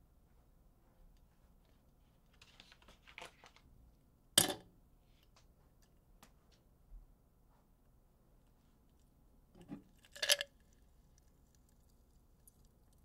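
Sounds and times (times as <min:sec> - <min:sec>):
ice crackling in a glass jar: 0:09.9 - 0:10.9
ice clinking against glass: 0:10.1 - 0:10.5.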